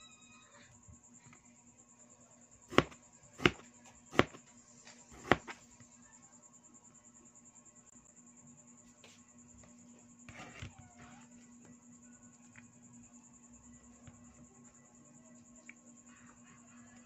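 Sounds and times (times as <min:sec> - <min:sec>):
cleaver chopping on plastic board: 0:02.7 - 0:04.4, 0:05.2 - 0:05.6.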